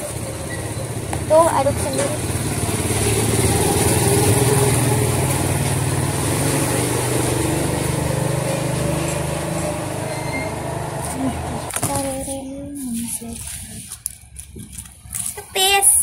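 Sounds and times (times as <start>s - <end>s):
small engine running: 0.0s - 12.5s.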